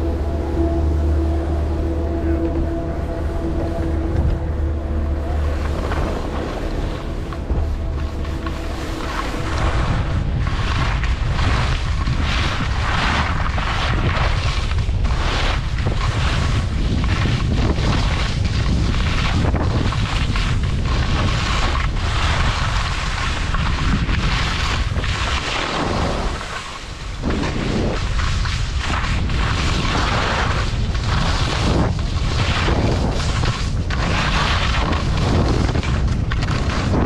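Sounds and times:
wind buffeting microphone: 0:00.0 - 0:37.0
skis scraping on snow: 0:05.0 - 0:37.0.

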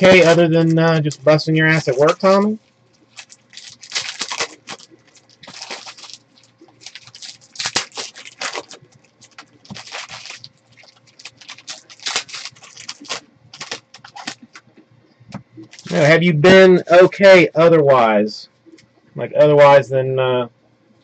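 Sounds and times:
foil wrapper tearing and crinkling: 0:00.0 - 0:14.6, 0:15.7 - 0:16.1.

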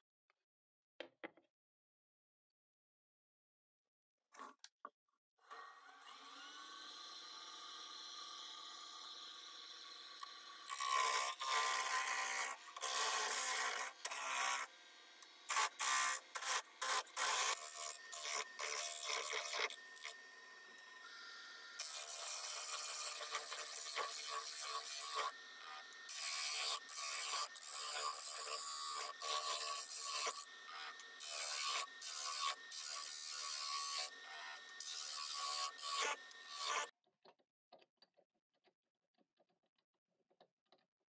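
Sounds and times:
chisel cutting wood on lathe: 0:05.5 - 0:36.9.

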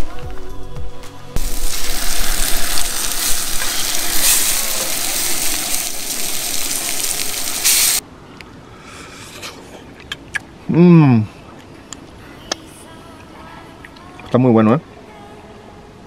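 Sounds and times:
steaks sizzling in a skillet: 0:01.4 - 0:08.0.

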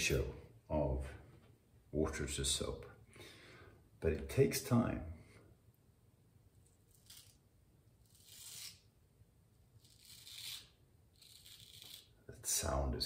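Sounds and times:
razor scraping stubble: 0:06.9 - 0:07.4, 0:08.0 - 0:08.9, 0:09.8 - 0:12.2.

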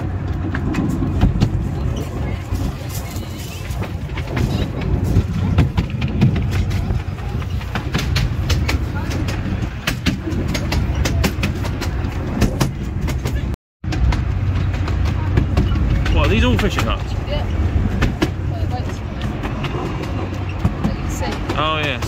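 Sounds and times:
miniature train rumbling and rattling: 0:00.0 - 0:22.0.

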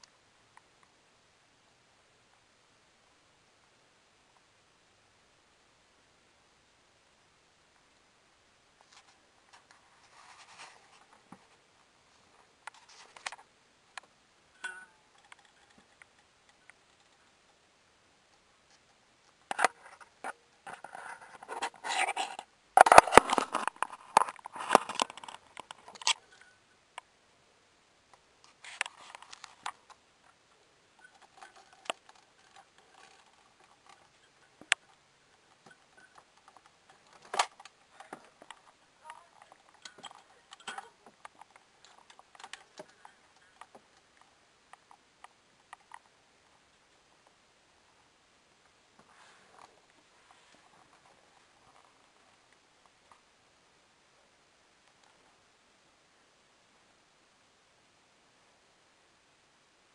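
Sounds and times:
handling clicks and rustling: 0:08.8 - 0:17.6, 0:18.3 - 0:27.1, 0:28.1 - 0:47.4.

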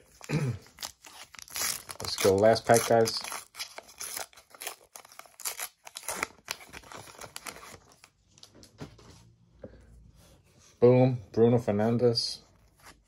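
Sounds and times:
foil wrapper tearing and crinkling: 0:00.1 - 0:08.0.

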